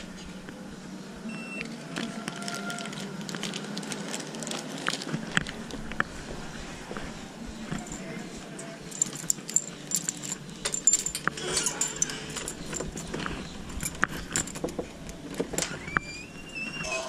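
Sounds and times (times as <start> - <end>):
keys jangling: 7.7 - 14.8.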